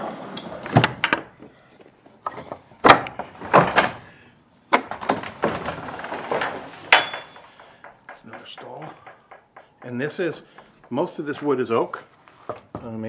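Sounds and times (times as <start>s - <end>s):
metal bolt latch clacking: 6.9s - 11.4s
wooden door knocking: 7.2s - 11.4s.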